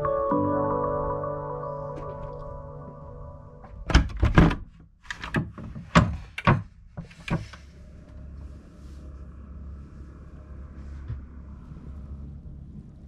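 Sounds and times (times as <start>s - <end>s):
wooden hatch knocks and scrapes: 3.9s - 7.6s
low wind rumble: 6.6s - 13.0s.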